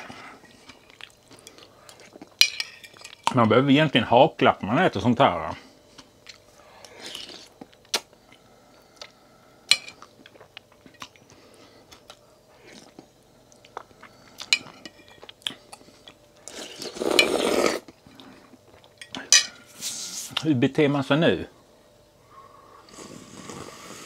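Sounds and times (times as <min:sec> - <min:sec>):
person slurping and chewing noodles: 0:15.2 - 0:18.9, 0:22.8 - 0:24.0.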